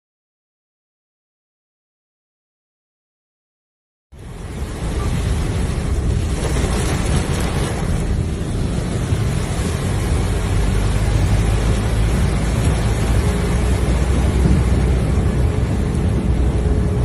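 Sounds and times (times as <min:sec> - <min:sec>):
rain and road spray: 0:04.1 - 0:17.0
wind buffeting microphone: 0:04.4 - 0:17.0.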